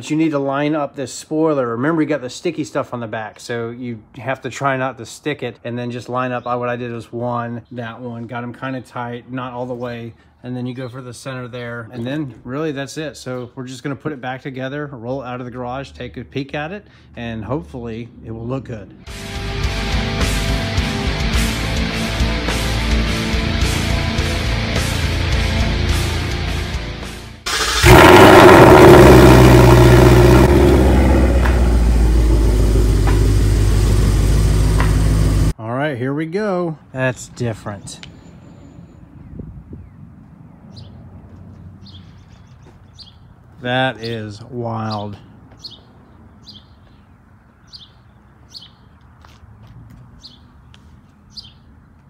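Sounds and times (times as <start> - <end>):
car engine starting and idling: 27.4 - 35.6
small bird chirping: 40.7 - 43.4, 44.9 - 49.0, 50.2 - 51.7.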